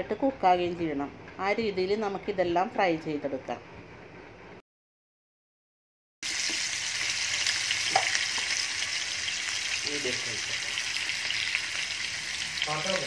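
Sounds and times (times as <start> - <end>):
fish sizzling in hot oil: 6.2 - 13.0.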